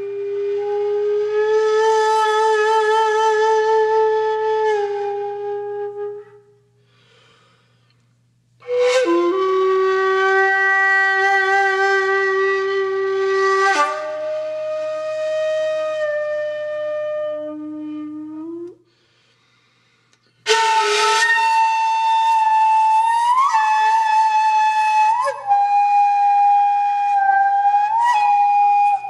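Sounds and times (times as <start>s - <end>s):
flute-like wind instrument: 0.0s - 6.6s, 8.6s - 18.8s, 20.4s - 29.0s.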